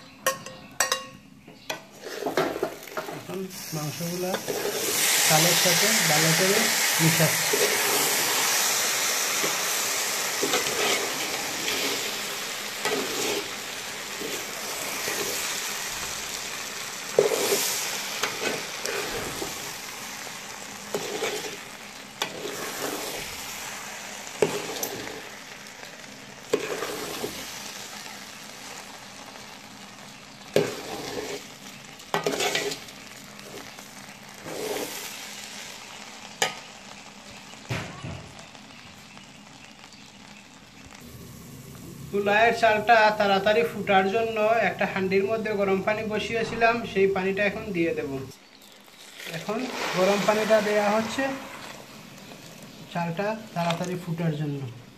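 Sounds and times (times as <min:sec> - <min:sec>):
food sizzling in oil: 0:00.0 - 0:54.9
metal spatula scraping pot: 0:01.7 - 0:03.3, 0:04.2 - 0:05.1, 0:10.4 - 0:12.1, 0:12.8 - 0:15.5, 0:17.2 - 0:19.6, 0:20.9 - 0:21.6, 0:22.2 - 0:23.3, 0:24.4 - 0:25.2, 0:26.5 - 0:27.3, 0:30.6 - 0:31.5, 0:32.1 - 0:32.9, 0:34.4 - 0:35.0.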